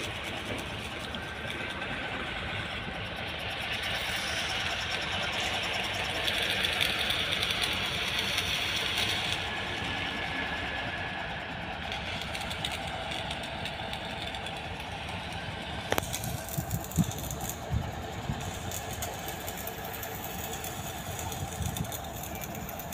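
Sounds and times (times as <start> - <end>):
construction machinery engine running: 0.0 - 22.9.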